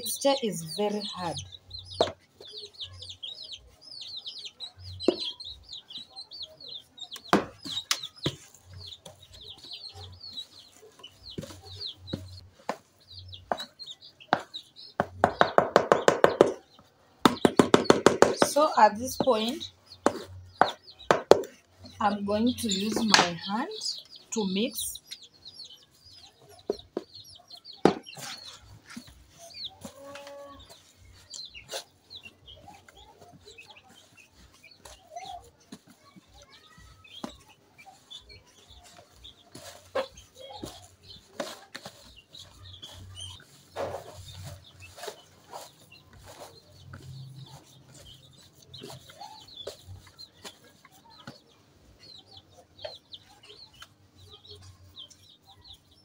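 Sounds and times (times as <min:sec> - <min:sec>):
chickens clucking: 0:00.0 - 0:56.0
hands kneading dough: 0:00.0 - 0:56.0
small birds chirping: 0:00.0 - 0:56.0
dough knocking against bowl: 0:14.3 - 0:16.6, 0:17.2 - 0:18.6, 0:20.0 - 0:21.6.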